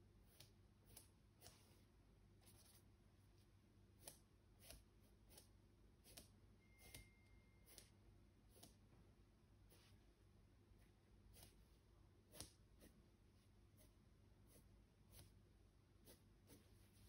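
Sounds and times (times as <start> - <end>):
paintbrush scratchy strokes: 1.0 - 3.5, 9.6 - 10.2, 12.8 - 15.4, 16.0 - 17.0.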